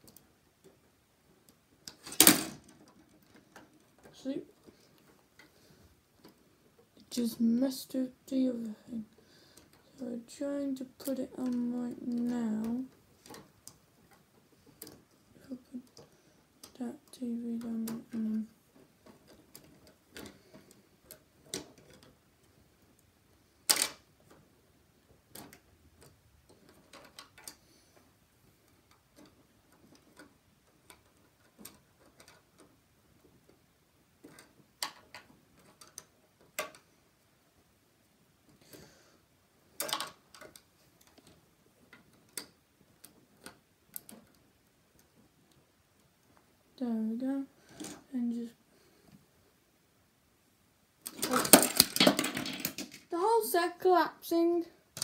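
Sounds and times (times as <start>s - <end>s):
plastic pieces clicking together: 1.4s - 5.5s, 10.8s - 24.4s, 25.2s - 27.6s, 28.7s - 33.4s, 34.2s - 36.9s, 39.7s - 46.1s, 51.0s - 53.2s.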